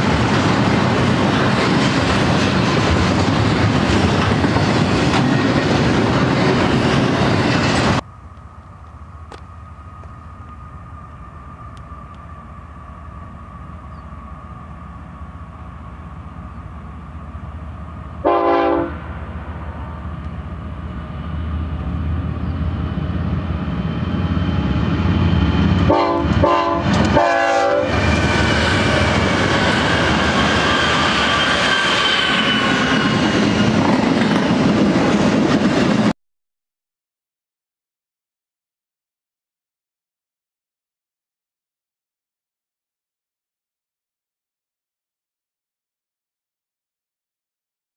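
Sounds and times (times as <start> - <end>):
diesel freight train approaching: 0.0 - 36.2
freight train wheels on rails: 0.0 - 36.2
train air horn blasts: 18.2 - 19.7, 25.8 - 32.9.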